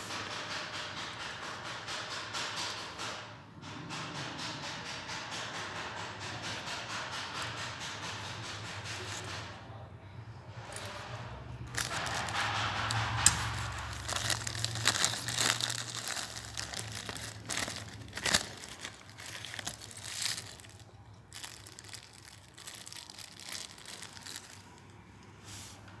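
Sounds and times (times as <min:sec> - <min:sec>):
plastic bags crinkling: 0:11.6 - 0:25.0.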